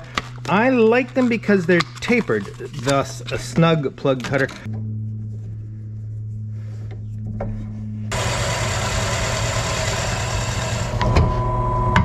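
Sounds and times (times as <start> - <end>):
plug cutter cutting wood: 8.1 - 11.1
drill press motor humming: 8.1 - 12.0.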